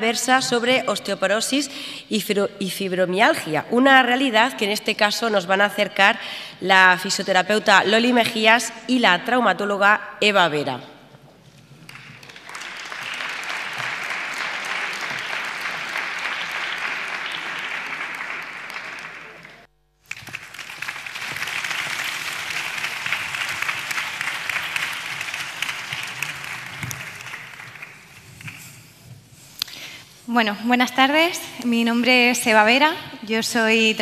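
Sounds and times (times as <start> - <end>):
audience applauding: 11.8 - 28.7.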